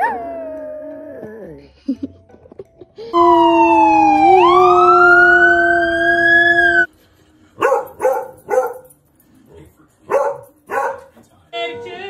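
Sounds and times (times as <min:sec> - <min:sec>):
dog barking: 0:07.6 - 0:08.9, 0:10.1 - 0:11.2.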